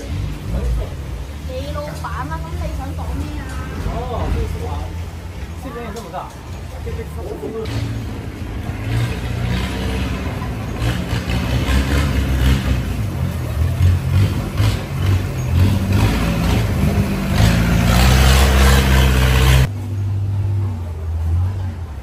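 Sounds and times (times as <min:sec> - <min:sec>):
loud engine running: 0:07.7 - 0:19.7.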